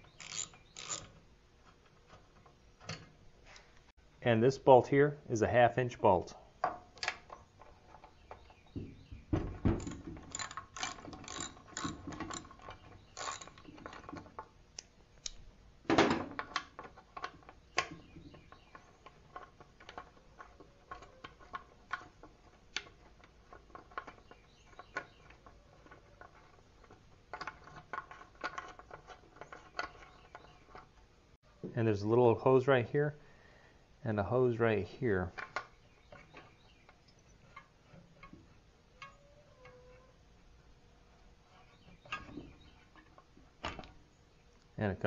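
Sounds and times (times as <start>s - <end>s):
socket ratchet clicking: 0.2s - 1.1s, 9.8s - 12.5s.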